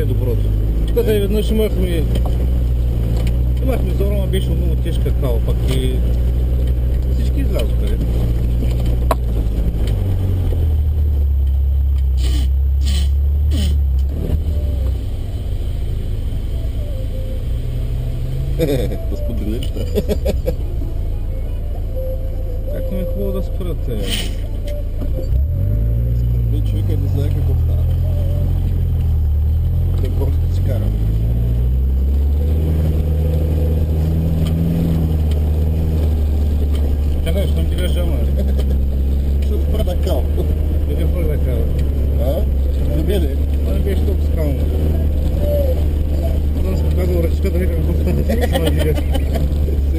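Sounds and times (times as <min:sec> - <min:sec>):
diesel engine running: 0:00.0 - 0:49.9
short scraping sounds: 0:12.1 - 0:14.4.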